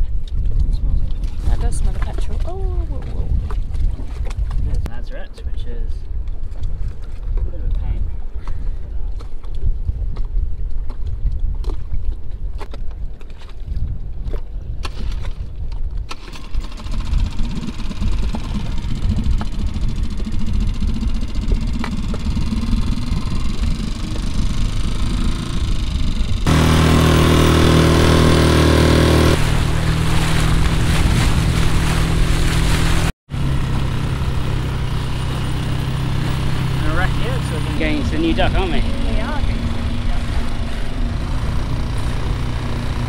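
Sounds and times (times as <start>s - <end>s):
wind: 0.0s - 43.0s
outboard motor running: 6.1s - 43.0s
water lapping: 26.4s - 33.1s.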